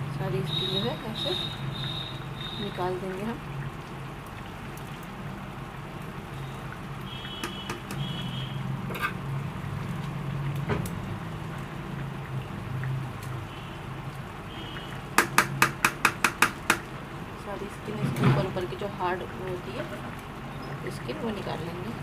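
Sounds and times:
food simmering: 0.0s - 22.0s
sharp metallic taps: 15.2s - 16.9s.

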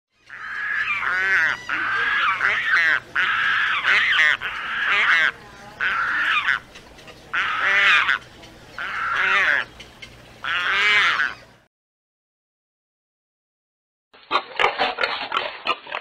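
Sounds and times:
pelican calling: 0.3s - 11.5s.

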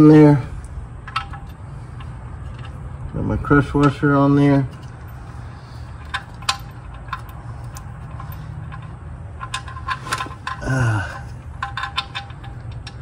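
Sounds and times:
low steady hum: 0.0s - 13.0s
person grunting: 10.6s - 11.4s.

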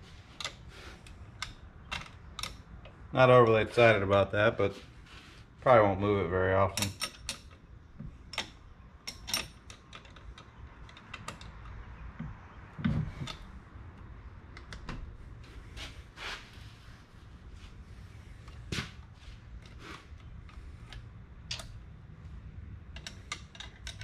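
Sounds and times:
metallic clicks of hand tools: 1.4s - 2.6s, 20.9s - 21.8s, 22.9s - 24.0s.

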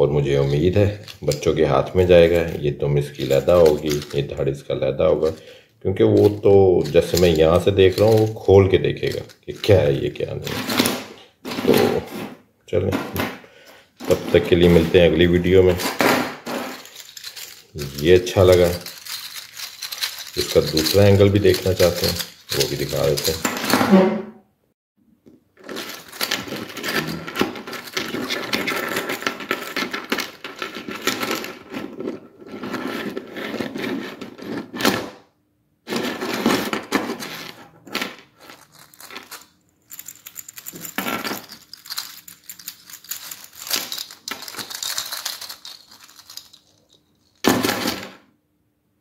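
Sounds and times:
plastic segments clicking and rattling: 3.2s - 4.3s, 6.2s - 10.6s, 16.7s - 23.6s, 25.6s - 31.6s, 38.5s - 47.6s.

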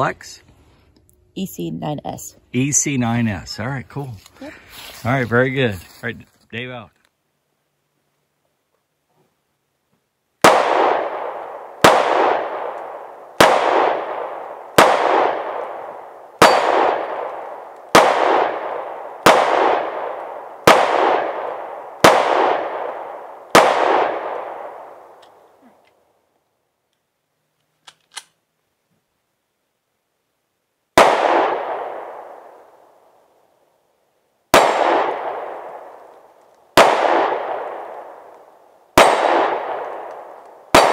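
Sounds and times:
pistol shots with echo: 10.4s - 25.2s, 31.0s - 32.8s, 34.5s - 36.0s, 36.7s - 38.3s, 39.0s - 40.9s.

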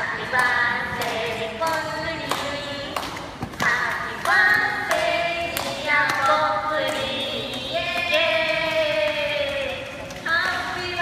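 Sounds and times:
people singing unaccompanied: 0.0s - 10.8s
people clapping in time: 0.0s - 11.0s.

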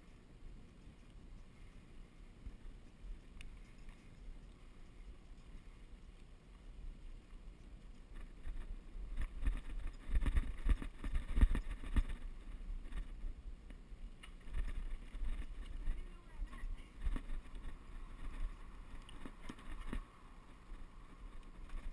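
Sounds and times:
wind rumble on microphone: 2.2s - 21.9s
bike rattling over rocky trail: 7.9s - 13.2s, 14.2s - 21.9s.

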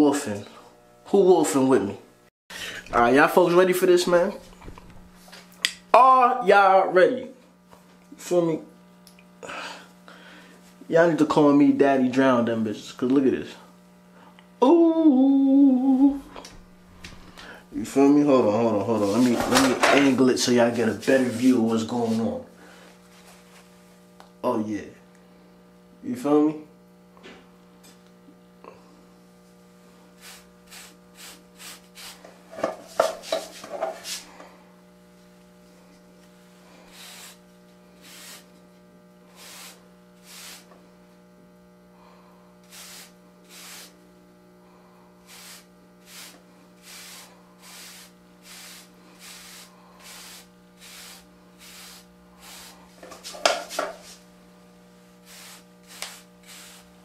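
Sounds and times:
steady low hum: 0.0s - 57.0s
brush scratching through hair: 19.0s - 19.7s, 20.7s - 22.4s, 32.9s - 34.3s, 36.9s - 38.5s, 39.3s - 40.7s, 42.7s - 44.0s, 45.3s - 54.3s, 55.2s - 57.0s.

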